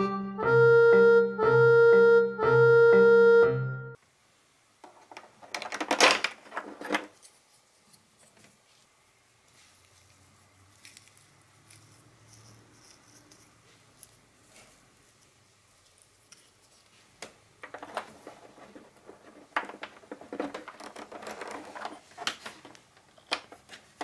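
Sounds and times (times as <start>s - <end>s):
rustling and crackling foam: 4.8s - 24.0s.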